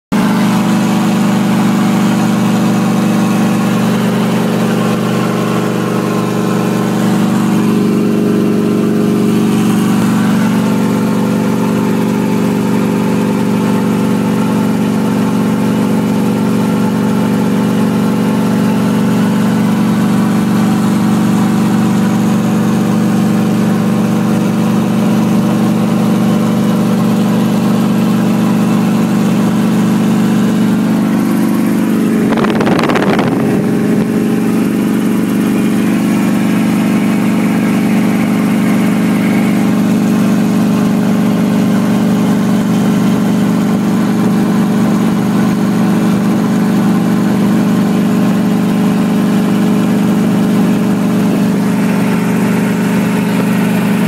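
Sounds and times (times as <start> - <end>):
helicopter engine and rotors droning: 26.8 - 42.8.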